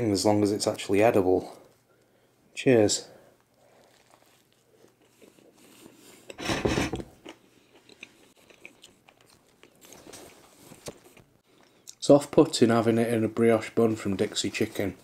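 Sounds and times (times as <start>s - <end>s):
person biting and chewing: 7.1s - 11.3s.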